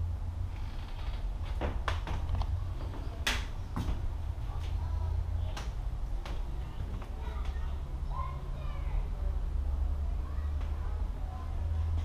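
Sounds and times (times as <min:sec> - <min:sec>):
steady low rumble: 0:00.0 - 0:12.0
floorboards creaking: 0:00.6 - 0:04.8.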